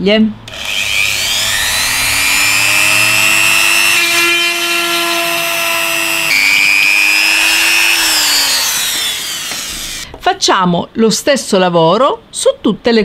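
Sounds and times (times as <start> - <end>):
rotary tool drilling shell: 0.5 - 10.1.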